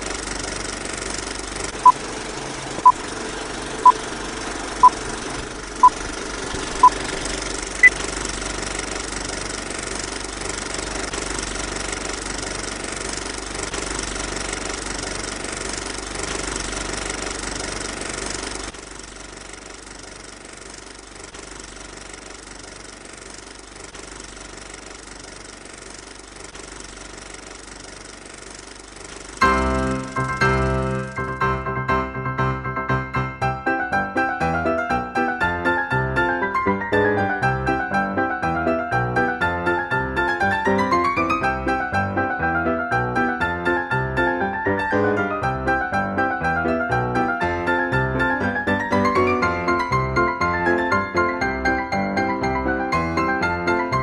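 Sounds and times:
film projector clattering: 0.0s - 31.5s, 39.2s - 42.3s, 47.2s - 54.0s.

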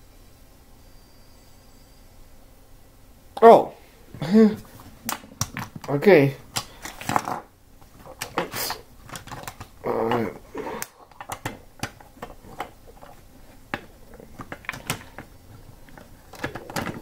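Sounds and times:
plastic bricks clicking together: 8.0s - 17.0s.

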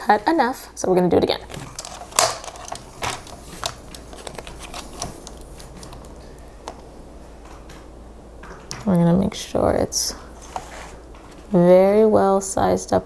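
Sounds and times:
handling rustle: 1.5s - 6.4s.

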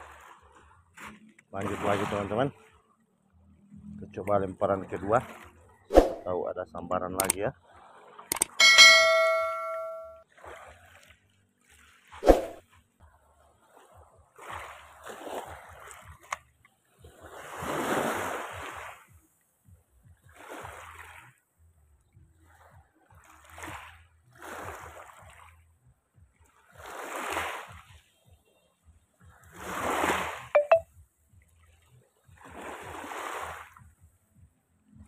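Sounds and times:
sharp click: 8.3s - 8.6s
waves washing onto pebbles: 17.2s - 19.0s.

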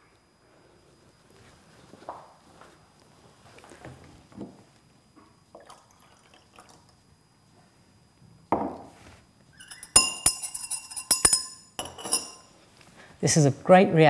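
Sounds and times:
liquid pouring into glass beaker: 5.5s - 7.0s
glass rod clinking against beaker: 9.6s - 12.5s.

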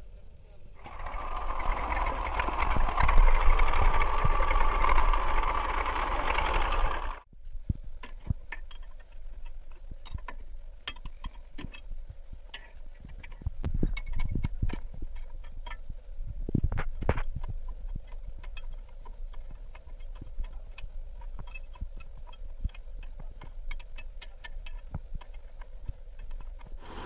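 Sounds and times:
loud mechanical noise: 0.8s - 7.3s, 26.8s - 27.0s.

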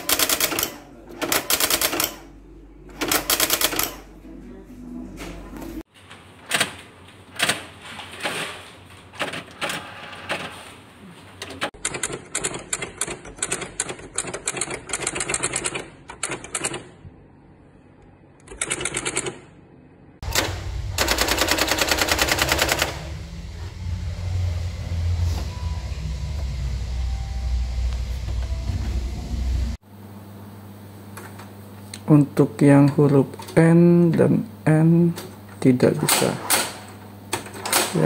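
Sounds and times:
typewriter clicking and whirring: 0.0s - 2.3s, 2.9s - 4.1s, 6.4s - 10.6s, 11.4s - 17.0s, 18.4s - 19.5s, 20.2s - 23.2s, 36.0s - 38.0s.

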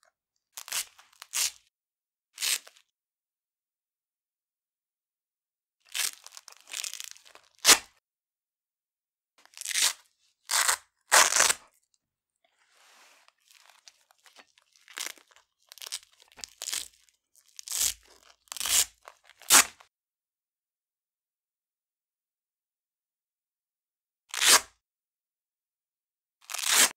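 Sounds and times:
velcro ripping: 0.6s - 1.6s, 2.4s - 2.8s, 5.9s - 7.9s, 9.4s - 11.7s, 13.4s - 19.8s, 24.3s - 24.7s, 26.4s - 26.9s.

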